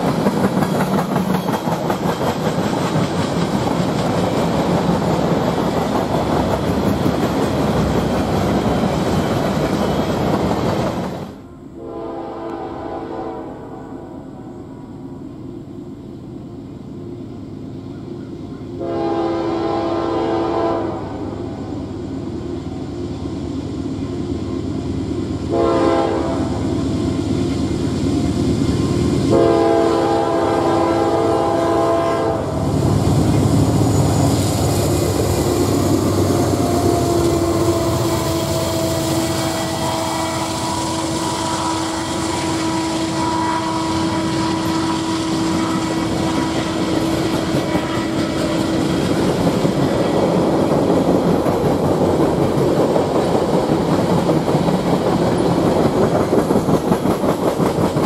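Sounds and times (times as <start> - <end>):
diesel locomotives rumbling past: 0.0 - 58.0
train wheels on rails: 0.0 - 58.0
locomotive air horn blasts: 11.8 - 14.2, 18.8 - 21.6, 25.5 - 26.6, 29.3 - 32.6, 36.3 - 48.6.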